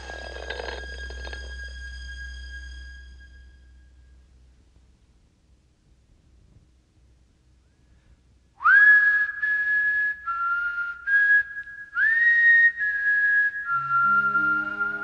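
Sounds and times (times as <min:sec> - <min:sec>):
person whistling a slow melody: 0:08.6 - 0:15.0.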